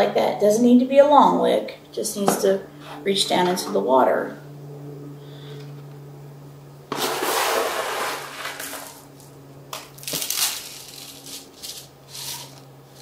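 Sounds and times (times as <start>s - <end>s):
potting mix crunching rustle: 6.9s - 13.0s
potting mix scraping: 6.9s - 13.0s.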